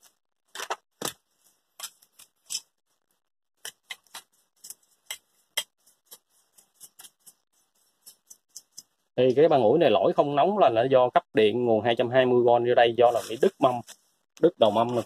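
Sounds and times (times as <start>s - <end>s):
brush scraping metal plate: 3.7s - 9.0s.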